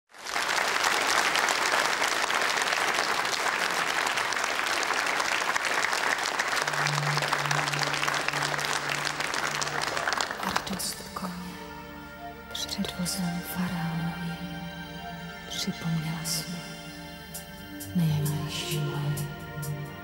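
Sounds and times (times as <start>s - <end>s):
audience applauding: 0.1s - 11.6s
low sustained music notes: 6.4s - 20.0s.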